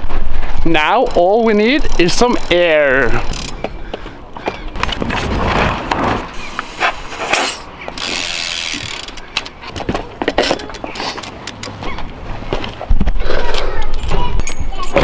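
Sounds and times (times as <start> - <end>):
bicycle hub ticking: 0.7 - 4.0, 7.9 - 9.6
bicycle handling clicks: 1.0 - 3.7, 7.4 - 11.8.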